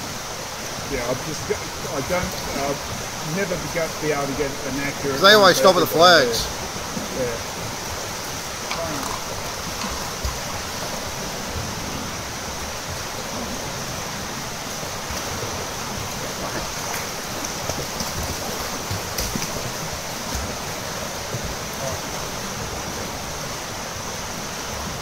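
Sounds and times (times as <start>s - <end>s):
swimmers splashing water: 1.2s - 7.2s, 14.7s - 22.8s.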